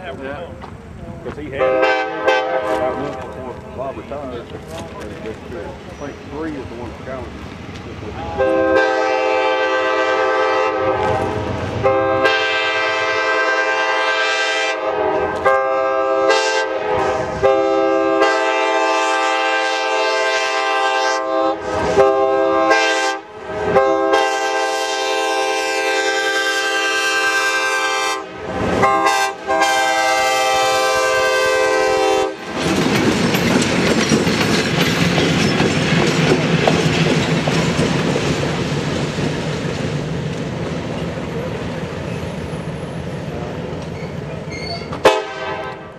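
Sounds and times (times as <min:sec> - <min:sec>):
locomotive engine and wheels rumbling: 0:00.0 - 0:45.9
locomotive air horn blasts: 0:01.6 - 0:03.4, 0:08.2 - 0:32.4, 0:45.0 - 0:45.9.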